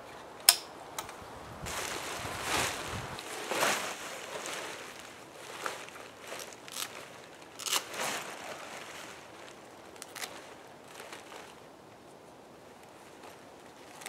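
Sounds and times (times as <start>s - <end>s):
fabric rustling: 1.6s - 11.6s.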